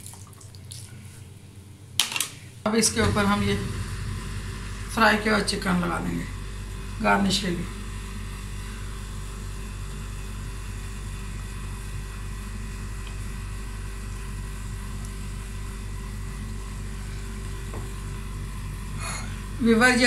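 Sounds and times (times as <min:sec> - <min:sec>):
low hum: 0:02.7 - 0:13.5.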